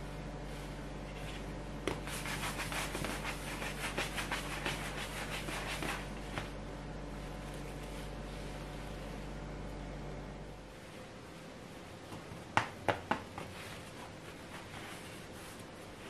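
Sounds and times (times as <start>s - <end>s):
hands rubbing dough on wood: 1.9s - 6.6s.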